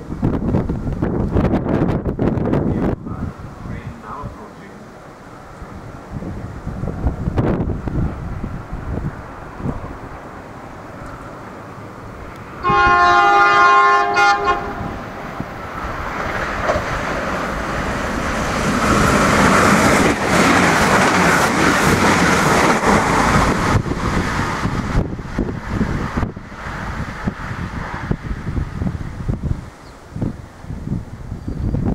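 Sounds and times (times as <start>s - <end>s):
train rushing past: 0.0s - 31.9s
train horn blast: 12.6s - 15.0s.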